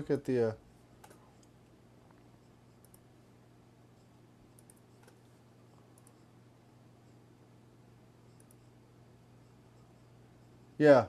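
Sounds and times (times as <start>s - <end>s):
low electrical hum: 0.0s - 11.0s
computer mouse clicks: 1.0s - 3.1s, 4.5s - 6.3s, 8.3s - 8.7s.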